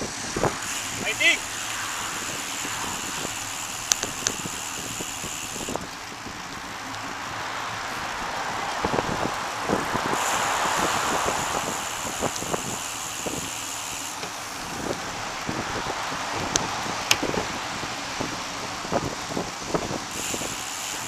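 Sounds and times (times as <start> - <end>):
bicycle knocks and rattles: 0.0 - 5.8, 11.8 - 15.0, 16.4 - 17.6
wind and road noise rushing: 0.0 - 21.0
sharp clicks: 3.8 - 4.6.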